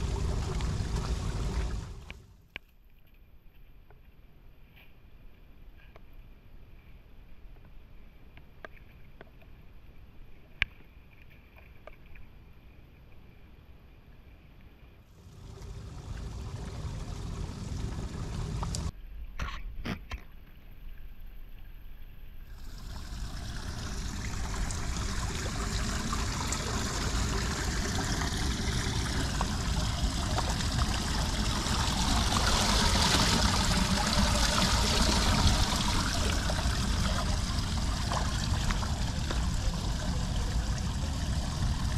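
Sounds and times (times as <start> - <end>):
water rushing into storm drain: 0.0 - 2.2, 15.2 - 18.9, 22.5 - 41.9
low rumble: 0.0 - 2.3, 15.2 - 18.9, 22.5 - 41.9.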